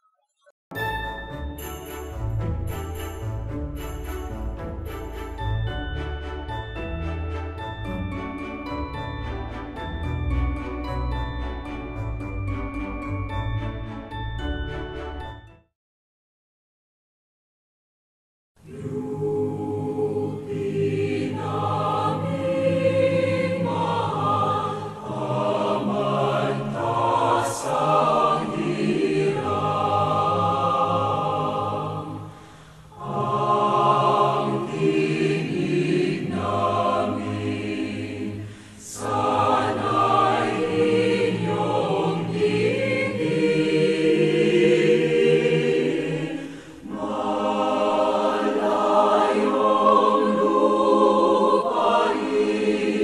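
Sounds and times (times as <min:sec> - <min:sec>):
choir singing: 0:18.6 - 0:53.0.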